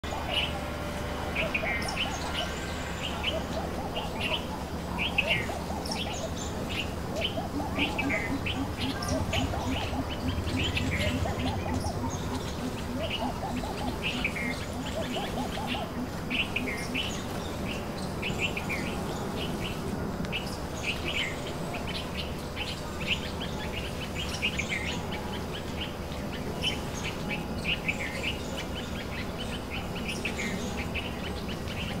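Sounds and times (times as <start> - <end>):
small birds chirping: 0.0 - 19.8
bird giving low hoots: 0.1 - 17.4.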